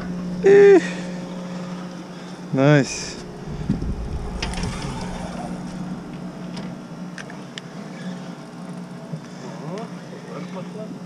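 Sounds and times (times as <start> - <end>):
steady low hum: 0.0 - 9.2
handling noise low rumble: 2.9 - 7.6.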